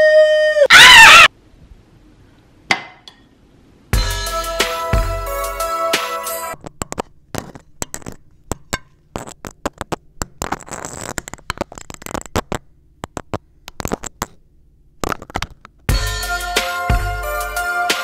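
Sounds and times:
cookies cracking and crunching: 6.6s - 14.4s.

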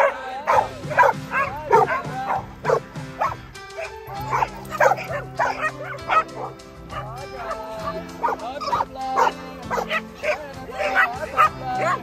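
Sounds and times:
background music with low notes: 0.0s - 12.0s
dogs barking and yipping: 0.0s - 12.0s.

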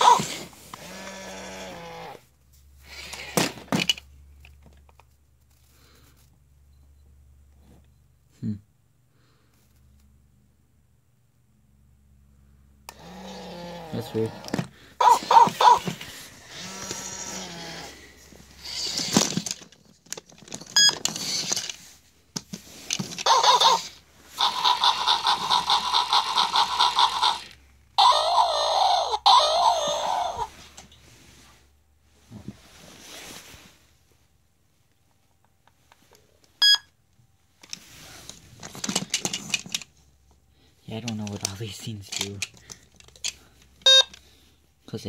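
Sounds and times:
toy gear motors whirring: 0.0s - 2.2s, 2.8s - 3.7s, 12.9s - 21.9s, 22.7s - 30.5s, 41.0s - 44.2s
rustling: 14.5s - 25.6s, 30.3s - 35.1s, 37.4s - 44.6s
toy mechanism clicks: 18.6s - 21.8s, 22.9s - 30.4s, 38.7s - 39.9s, 41.0s - 44.2s
toy dog electronic beep: 20.8s - 21.0s, 23.2s - 30.4s, 36.6s - 36.9s, 43.8s - 44.2s.

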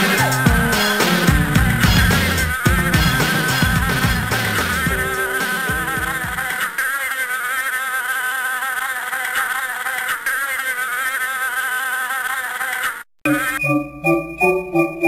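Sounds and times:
fly buzzing: 0.0s - 13.6s.

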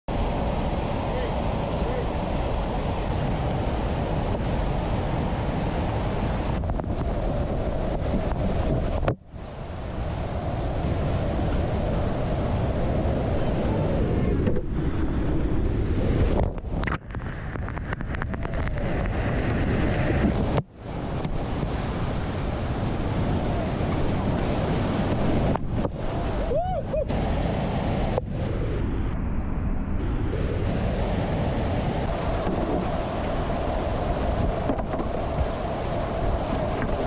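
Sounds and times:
waterfall and rapids rushing: 0.1s - 14.4s, 16.0s - 28.8s, 29.6s - 37.0s
wind buffeting microphone: 0.1s - 29.4s, 30.0s - 37.0s.

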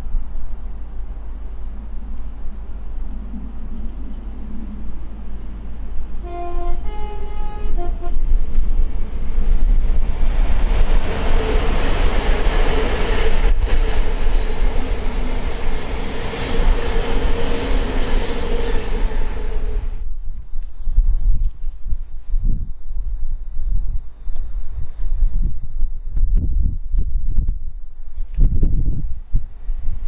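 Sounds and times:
train wheel and rail rush: 0.0s - 22.4s, 26.7s - 30.0s
two-tone train horn: 6.2s - 8.4s.

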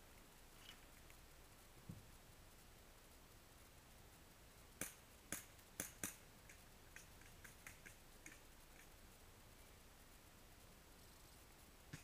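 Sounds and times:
faint high ticks: 0.0s - 3.2s, 4.7s - 9.8s.

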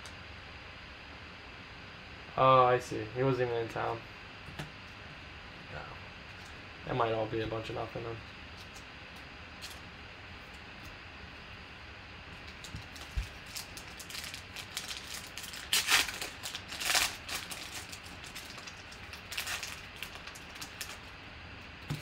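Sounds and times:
foil crinkling: 12.4s - 21.2s
foil wrapper ripping: 12.4s - 21.2s.

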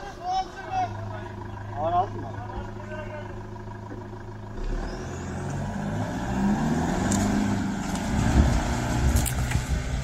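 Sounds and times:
truck engine idling and revving: 0.0s - 10.0s.

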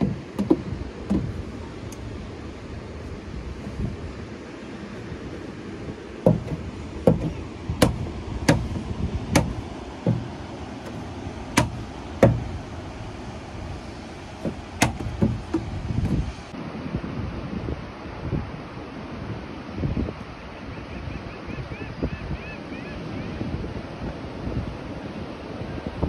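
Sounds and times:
sharp knocks: 0.0s - 2.0s, 6.2s - 12.7s, 14.4s - 16.2s
steady low rumble: 0.0s - 16.5s.

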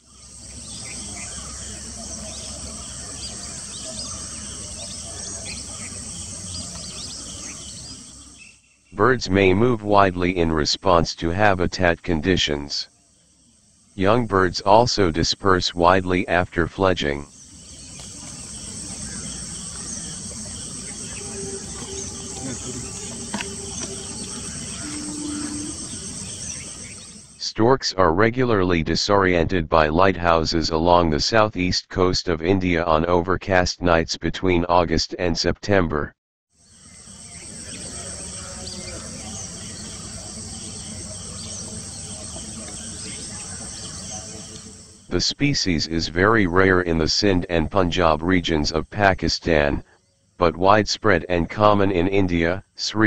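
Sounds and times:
bird chirps: 0.0s - 9.6s, 17.0s - 27.5s, 36.7s - 45.2s
crickets trilling: 0.0s - 16.4s, 17.0s - 27.4s, 36.5s - 45.2s
insects buzzing: 0.0s - 16.4s, 17.0s - 27.4s, 36.5s - 45.9s
short low tones: 21.0s - 26.2s.

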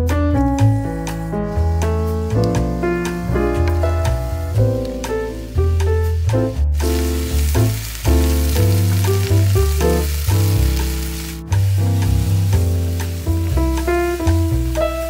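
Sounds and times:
background piano music: 0.0s - 15.0s
mushrooms sizzling in oil: 0.8s - 15.0s
wooden spatula stirring in pan: 6.8s - 15.0s.

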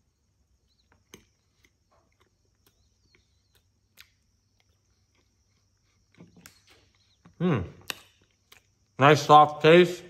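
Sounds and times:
man chewing: 0.6s - 9.0s
wet mouth clicks and smacks: 1.0s - 6.8s, 7.8s - 8.9s.

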